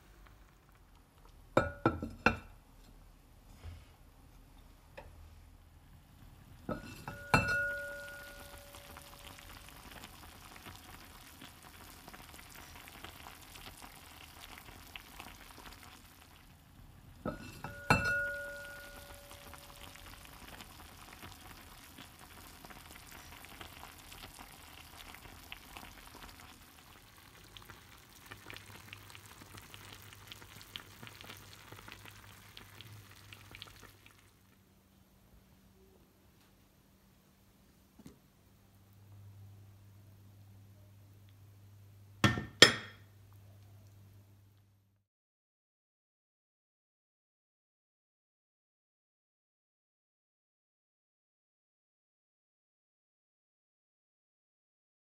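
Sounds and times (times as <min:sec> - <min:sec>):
vegetables simmering and sizzling: 0:00.0 - 0:03.7, 0:04.6 - 0:35.1
ceramic lid clinking: 0:06.7 - 0:08.4, 0:17.3 - 0:19.1, 0:42.2 - 0:43.0.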